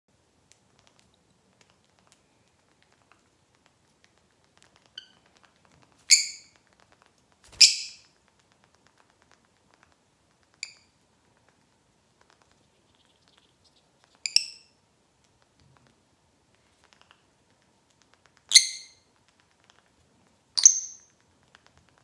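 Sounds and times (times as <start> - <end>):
faint clicking: 0.4 - 14.2, 15.2 - 22.0
lovebirds chirping: 6.1 - 6.6, 7.5 - 8.2, 12.4 - 14.8, 18.5 - 19.1, 20.4 - 21.2.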